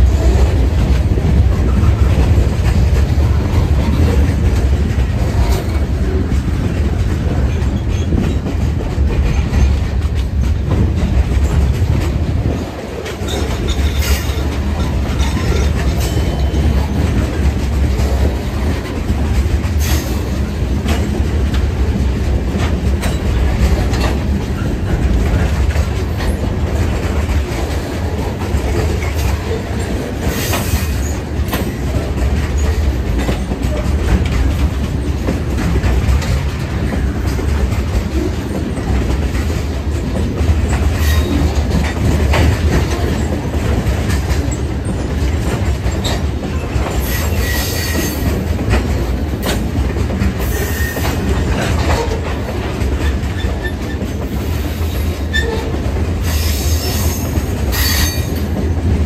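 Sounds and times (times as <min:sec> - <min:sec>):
freight train wheels rumbling: 0:00.0 - 0:59.0
train wheels squealing: 0:41.0 - 0:41.5, 0:47.0 - 0:48.3, 0:50.4 - 0:51.2, 0:53.4 - 0:58.5.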